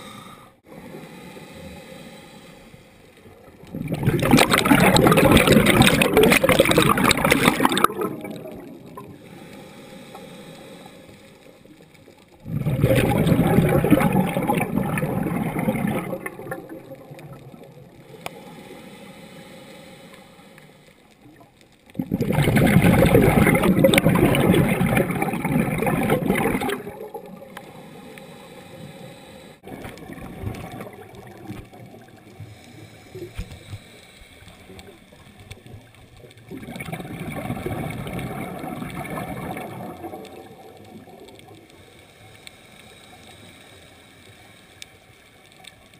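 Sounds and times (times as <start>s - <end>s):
underwater exhaled bubbles: 2.6s - 18.9s, 21.0s - 44.0s
low underwater gurgling: 3.2s - 9.5s, 11.6s - 18.3s, 21.2s - 27.9s, 29.6s - 33.8s, 34.6s - 41.8s.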